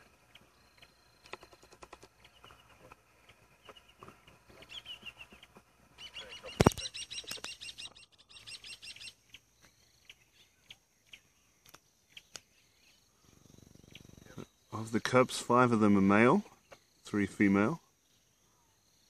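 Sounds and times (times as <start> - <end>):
birds chirping: 0.0 - 19.0
insect trill: 6.4 - 19.0.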